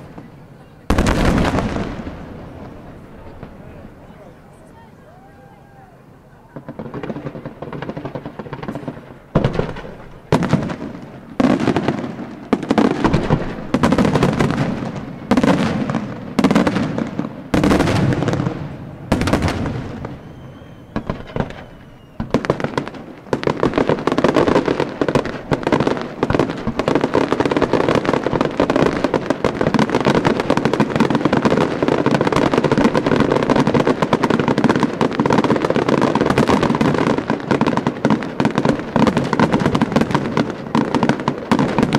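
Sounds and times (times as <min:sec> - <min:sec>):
fireworks bursting with bangs: 0:00.0 - 0:41.9
fireworks crackling: 0:00.0 - 0:41.9
faint firework whistle: 0:19.6 - 0:22.6.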